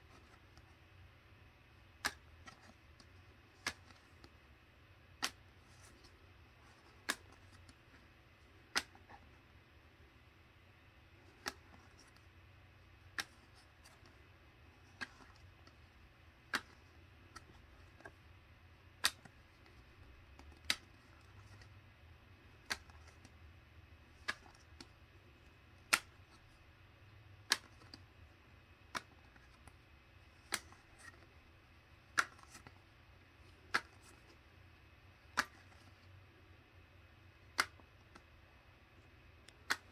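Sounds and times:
faint low hum: 0:00.0 - 0:39.9
trading cards snapping: 0:01.8 - 0:04.3, 0:05.1 - 0:07.9, 0:08.6 - 0:09.3, 0:11.2 - 0:12.2, 0:13.0 - 0:14.1, 0:14.8 - 0:18.2, 0:18.9 - 0:21.8, 0:22.5 - 0:23.4, 0:24.1 - 0:24.9, 0:25.8 - 0:26.6, 0:27.4 - 0:28.1, 0:28.7 - 0:31.4, 0:32.0 - 0:32.8, 0:33.5 - 0:34.4, 0:35.2 - 0:36.0, 0:37.4 - 0:38.2, 0:39.4 - 0:39.9.

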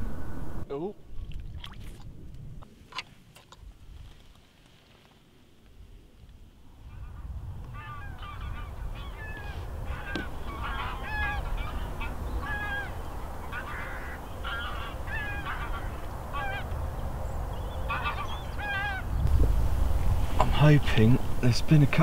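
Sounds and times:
wind on microphone: 0:05.8 - 0:22.0
geese honking: 0:07.8 - 0:16.8, 0:17.8 - 0:19.1.

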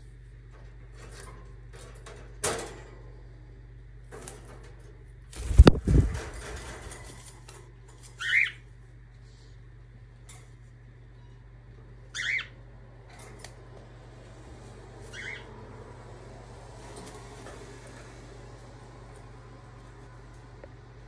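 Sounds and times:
bird wings flapping: 0:05.3 - 0:07.5.

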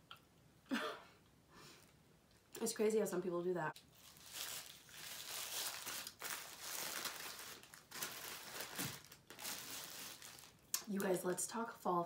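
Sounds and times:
paper wrapper crinkling: 0:03.8 - 0:11.4.

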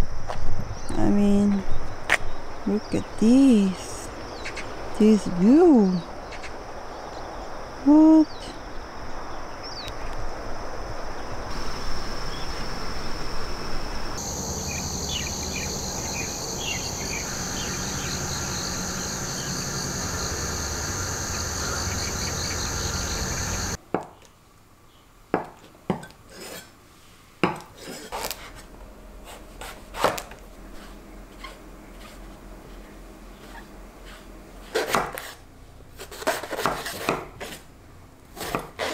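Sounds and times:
high insect chorus: 0:00.0 - 0:23.8
wind: 0:00.0 - 0:38.9
knife slicing vegetable on board: 0:29.2 - 0:32.2, 0:33.4 - 0:35.4, 0:36.0 - 0:37.6, 0:38.4 - 0:38.9.

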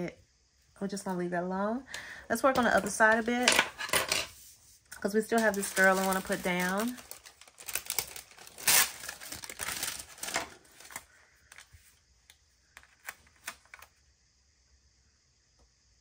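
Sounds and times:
sticker paper crinkling and rustling: 0:05.0 - 0:11.9, 0:12.8 - 0:13.9.

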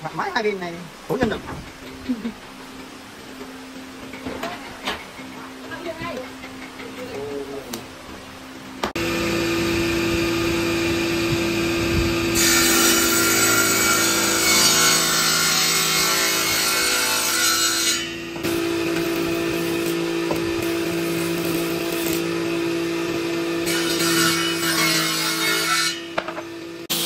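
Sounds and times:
electric power saw running: 0:09.0 - 0:14.4, 0:18.2 - 0:23.9
saw cutting through wood: 0:09.0 - 0:26.2.

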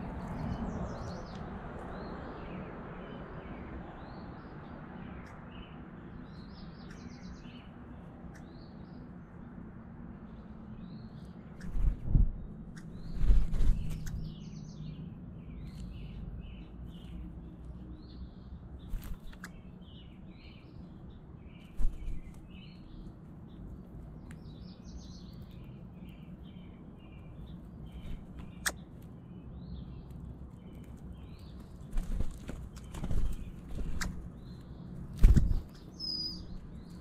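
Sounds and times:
low background rumble: 0:00.0 - 0:37.0
songbirds chirping and twittering: 0:00.0 - 0:37.0.

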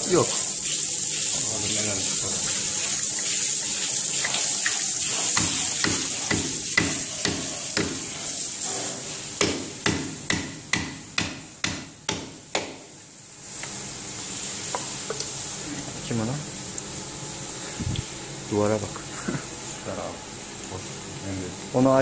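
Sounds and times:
steel tool knocking on concrete: 0:05.4 - 0:08.0.

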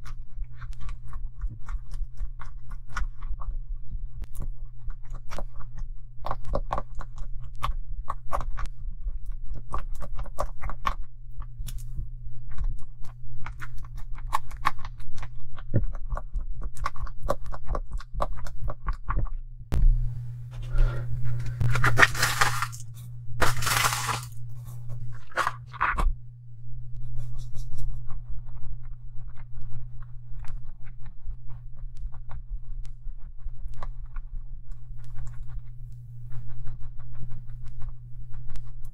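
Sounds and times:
low hum: 0:00.0 - 0:16.5, 0:18.2 - 0:38.9
sticky slime squelching: 0:20.4 - 0:26.1.

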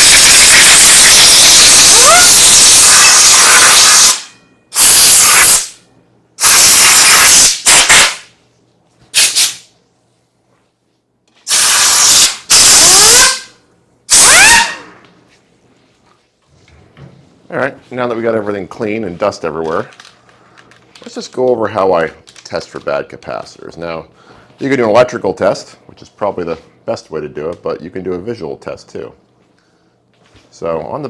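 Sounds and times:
compressed air blasting: 0:00.0 - 0:05.8, 0:06.4 - 0:08.3, 0:09.1 - 0:09.7, 0:11.4 - 0:15.0.

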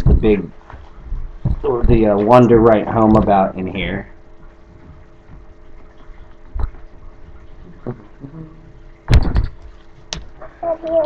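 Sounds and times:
faint steady hum: 0:00.0 - 0:11.0
knocks and rustles on table: 0:00.7 - 0:01.6.

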